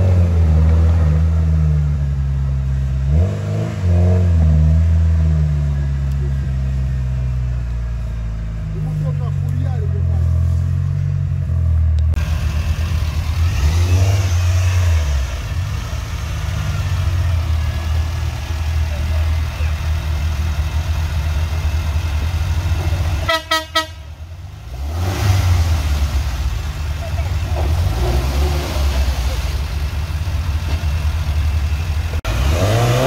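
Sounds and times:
off-road vehicle engine rumbling: 0.0 - 33.0
short horn toots: 23.2 - 24.1.

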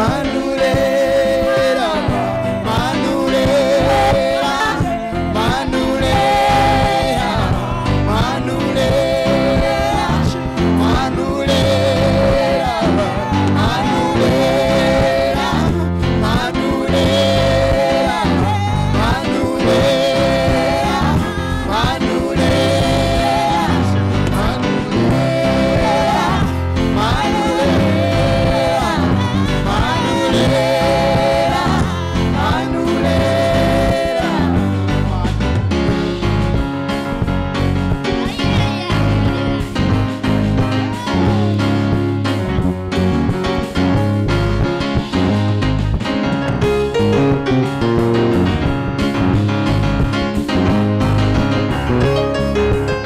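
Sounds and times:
women's choir singing gospel: 0.0 - 35.3, 37.9 - 43.8
amplified band accompaniment: 0.0 - 53.0.

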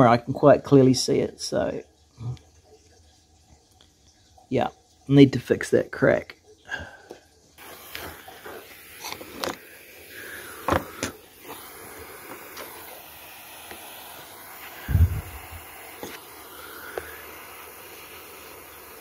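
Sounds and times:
gas torch hissing: 7.6 - 19.0.

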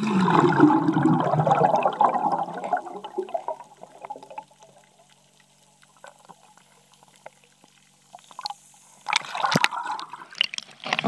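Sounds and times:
water bubbling and gurgling: 0.0 - 11.0
faint underwater ticks: 4.2 - 10.7.

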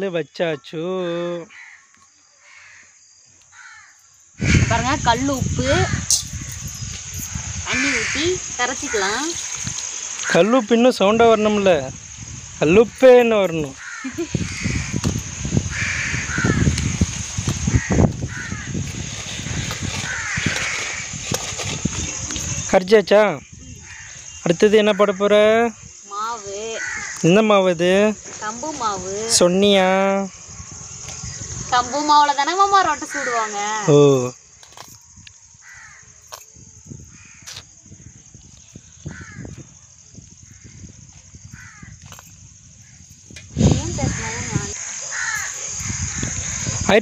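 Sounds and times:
crows cawing: 1.4 - 5.0, 7.7 - 9.4, 10.2 - 10.7, 12.9 - 18.8, 19.5 - 21.2, 23.8 - 25.4, 26.2 - 27.4, 33.0 - 33.9, 35.6 - 36.2, 37.1 - 37.6, 39.0 - 39.6, 41.5 - 42.0, 44.0 - 46.8.

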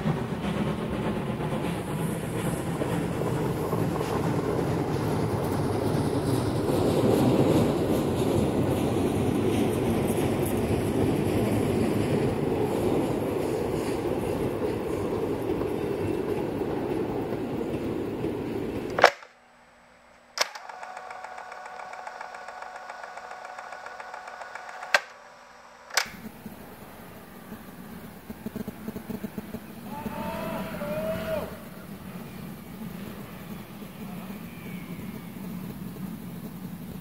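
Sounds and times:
steam train rumbling: 0.0 - 19.2, 20.4 - 37.0
sharp clicks: 18.9 - 19.4, 20.4 - 25.3, 25.9 - 26.6.

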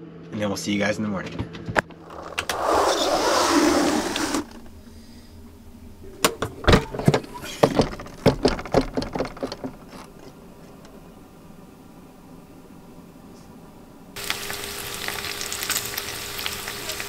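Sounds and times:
loud hiss: 2.0 - 5.5
irregular sharp clicks and knocks: 6.2 - 11.0.

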